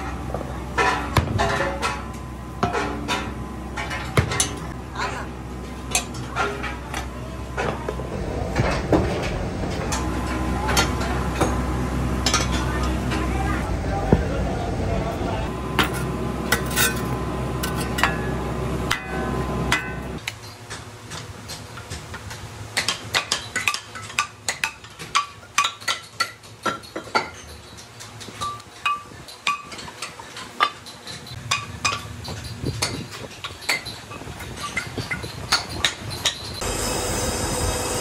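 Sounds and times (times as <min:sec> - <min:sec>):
steady low rumble: 0:00.0 - 0:20.2.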